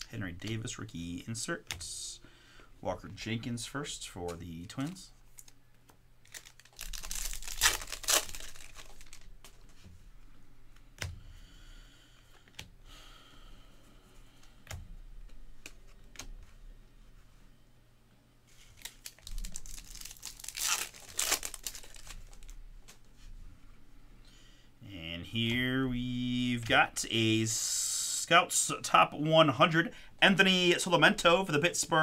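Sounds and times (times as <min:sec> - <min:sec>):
cards rustling and clicking: 0:04.3 - 0:09.9, 0:18.6 - 0:23.0
wrappers tearing and crinkling: 0:06.2 - 0:09.6, 0:18.7 - 0:22.6.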